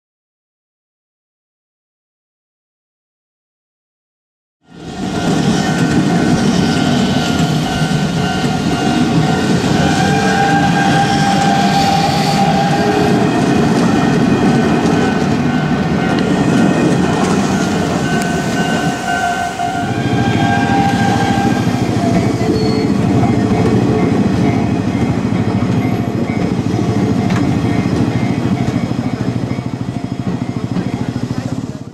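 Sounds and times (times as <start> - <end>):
level-crossing alarm ringing: 4.7 - 31.9
train wheels rumbling on track: 4.7 - 31.9.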